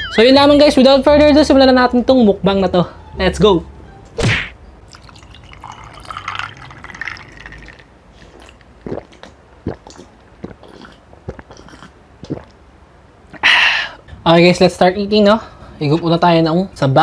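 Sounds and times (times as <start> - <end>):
water pouring over ice: 4.9 - 7.9
gulping: 8.3 - 12.6.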